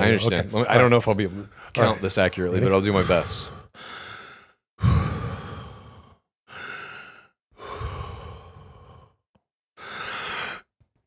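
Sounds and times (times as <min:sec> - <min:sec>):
man breathing heavily: 0:02.9 - 0:10.7.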